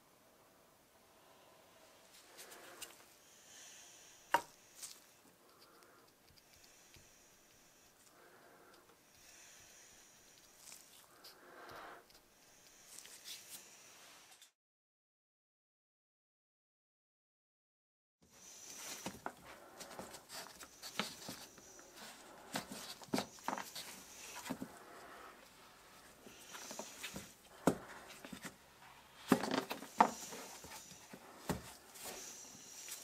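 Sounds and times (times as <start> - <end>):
gloves rubbing against plastic: 18.7 - 33.0.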